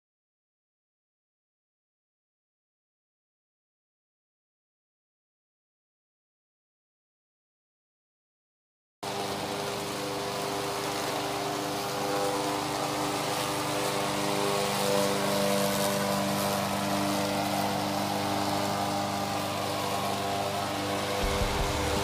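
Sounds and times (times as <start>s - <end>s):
mower cutting grass: 9.0s - 22.0s
mower engine running: 9.1s - 22.0s.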